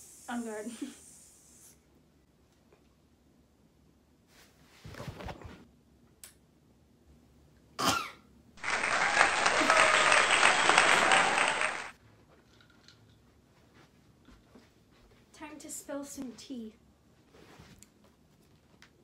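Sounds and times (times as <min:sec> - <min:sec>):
applause: 0:08.6 - 0:12.0.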